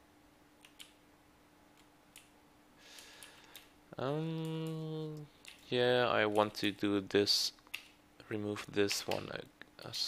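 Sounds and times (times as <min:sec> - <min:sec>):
faint steady hum: 0:00.0 - 0:10.0
keyboard key presses: 0:00.6 - 0:01.0
man saying ehh: 0:04.0 - 0:05.3.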